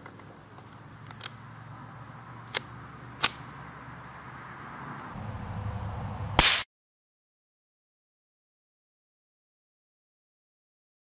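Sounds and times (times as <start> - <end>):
rifle shots cracking: 2.5 - 3.5, 6.4 - 6.6.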